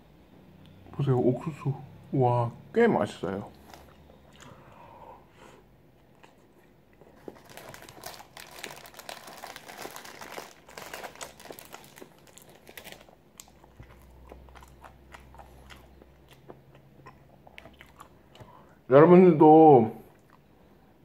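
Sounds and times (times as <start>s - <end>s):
low steady hum: 0.0s - 21.0s
plastic wrapper crinkling: 7.1s - 13.9s.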